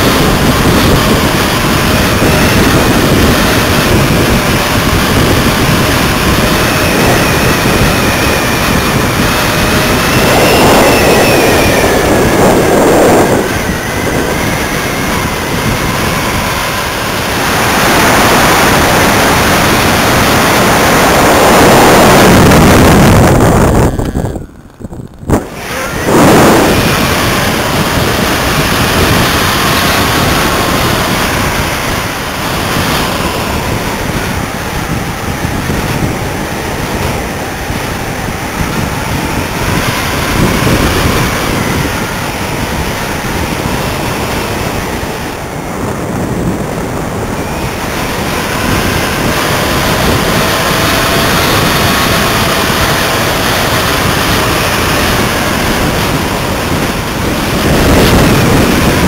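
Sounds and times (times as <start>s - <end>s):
wind rushing over microphone: 0.0s - 59.0s
faint wavering whistles: 6.6s - 18.7s.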